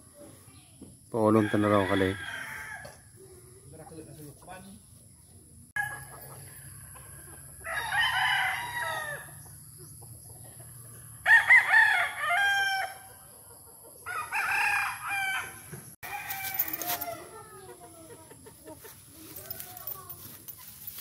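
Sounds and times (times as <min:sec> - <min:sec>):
roosters crowing: 0:01.2 - 0:03.2, 0:05.8 - 0:09.5, 0:10.7 - 0:13.4, 0:14.0 - 0:20.6.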